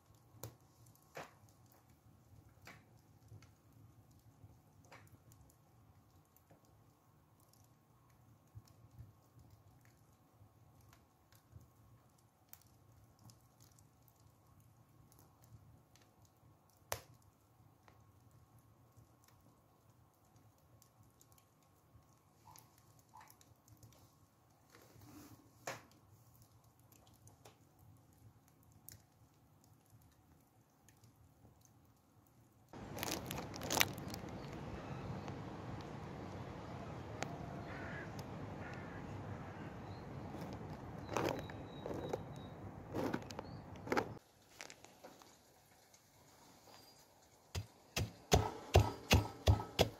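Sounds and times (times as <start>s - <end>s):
embers crackling and ticking: 0.0s - 49.9s
low steady hum: 32.8s - 44.2s.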